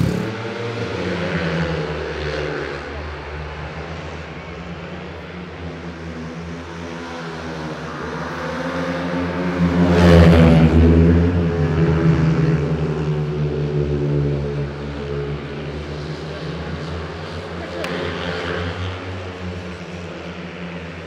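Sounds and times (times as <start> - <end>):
motorcycle engines at high revs: 0.0 - 3.8.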